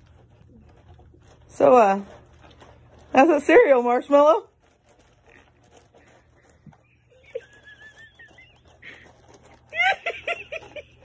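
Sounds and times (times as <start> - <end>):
person laughing: 7.1 - 9.0, 9.7 - 11.0.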